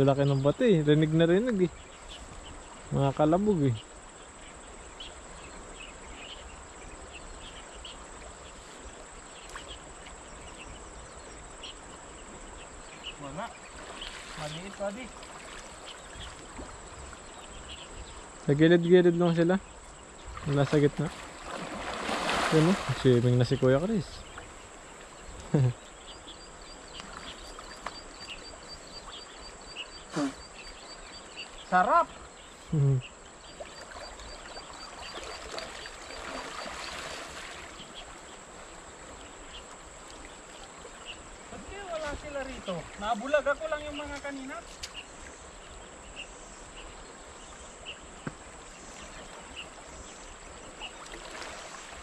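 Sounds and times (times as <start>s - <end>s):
high-pitched insect trill: 0.0s - 48.0s
insect chirps: 0.0s - 52.0s
outdoor background hiss: 0.0s - 52.0s
human voice: 32.7s - 33.0s.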